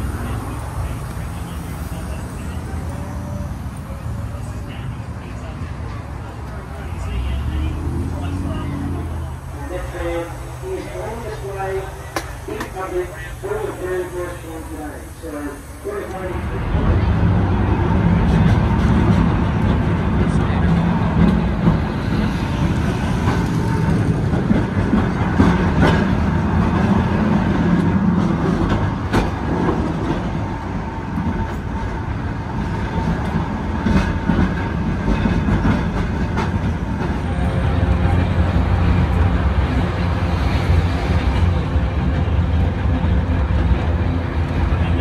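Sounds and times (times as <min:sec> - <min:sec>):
tram rumbling on track: 0:00.0 - 0:45.0
wheels clicking over rail joints: 0:18.1 - 0:39.8.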